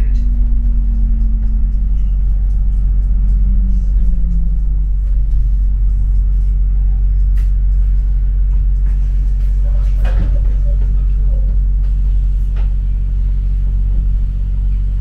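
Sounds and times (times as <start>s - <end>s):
bus engine and road rumble: 0.0s - 15.0s.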